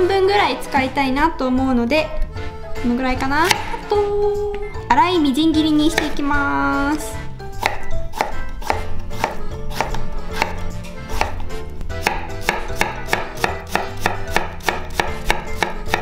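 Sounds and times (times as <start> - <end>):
knife chopping on wooden board: 3.4 - 3.9, 5.9 - 6.3, 7.5 - 16.0.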